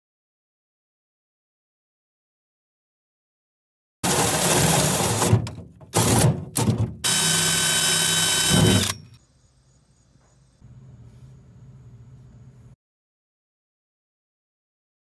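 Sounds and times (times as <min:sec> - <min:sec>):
cordless drill boring sheet metal: 0:04.0 - 0:09.2.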